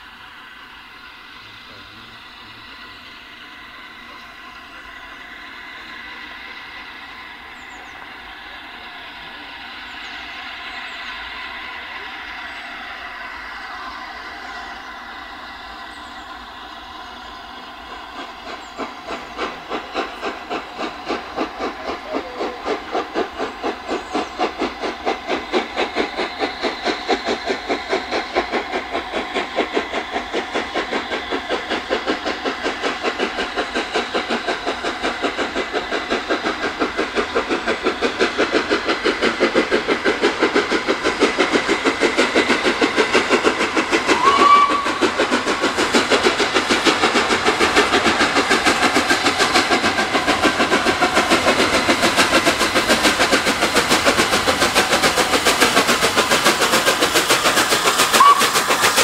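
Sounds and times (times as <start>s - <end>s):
steam hissing: 0.0s - 59.0s
steam locomotive chuffing: 0.0s - 59.0s.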